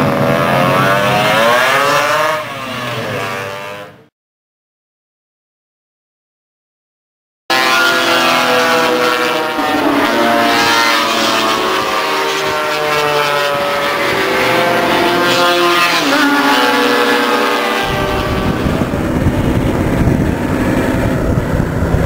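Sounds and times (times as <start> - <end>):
racing scooter engines revving: 0.0 - 4.1, 7.5 - 22.0
rough engine noise: 7.5 - 22.0.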